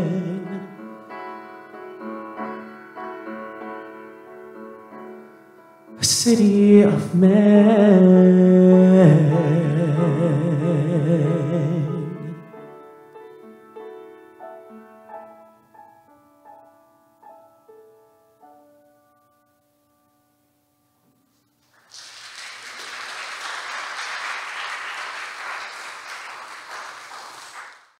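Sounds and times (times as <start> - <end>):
upright piano playing: 0.0 - 21.0
audience applause: 21.6 - 28.0.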